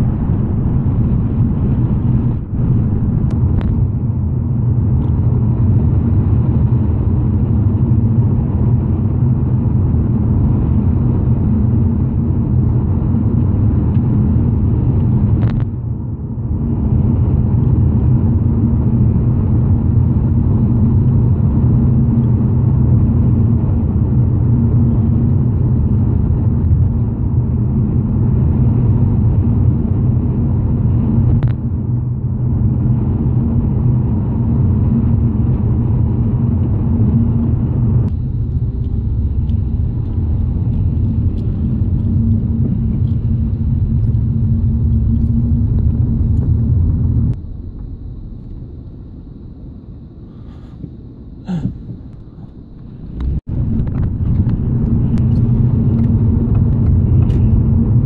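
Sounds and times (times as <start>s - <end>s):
car road and engine rumble: 0.0s - 58.0s.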